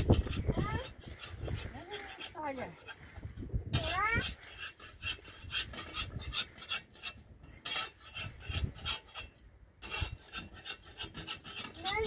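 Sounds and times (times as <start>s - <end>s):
spatula scraping iron griddle: 0.0s - 12.0s.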